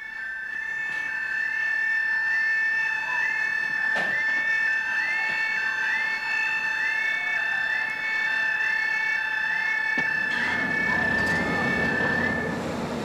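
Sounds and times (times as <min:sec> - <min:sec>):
steady high tone: 0:00.0 - 0:12.9.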